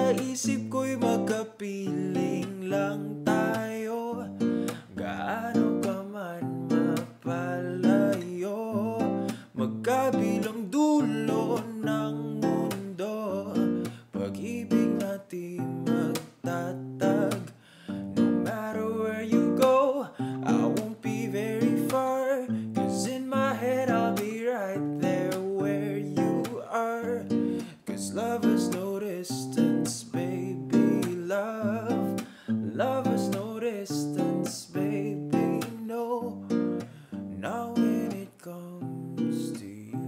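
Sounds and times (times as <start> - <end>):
acoustic guitar strumming: 0.0 - 40.0
man singing: 0.0 - 40.0.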